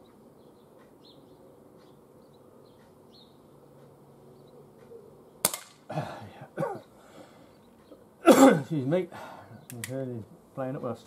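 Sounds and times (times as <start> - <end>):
faint birdsong: 0.0 - 11.0
pellet revolver shot: 5.4 - 5.9.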